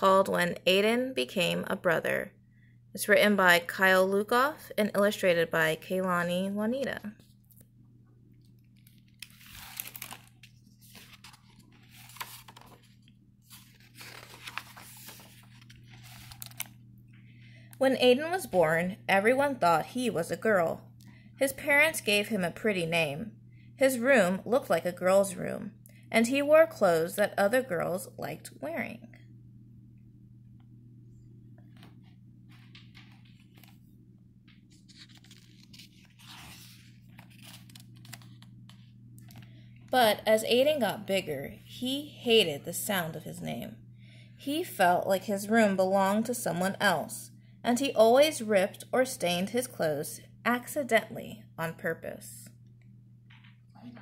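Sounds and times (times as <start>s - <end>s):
steady low hum: 0.0s - 54.0s
book pages rustling: 8.4s - 16.8s, 31.6s - 39.6s.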